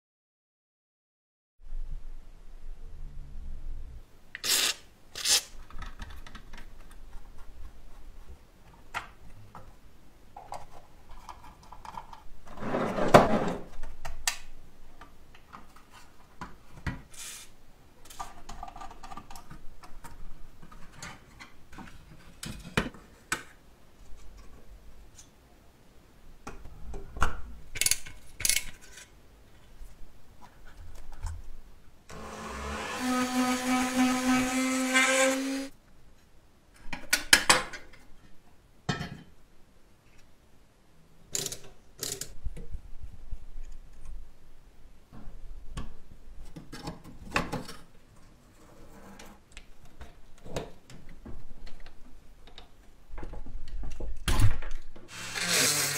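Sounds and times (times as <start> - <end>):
spray can hissing: 4.4 - 5.4
toy parts clicking and scraping: 27.8 - 29.1.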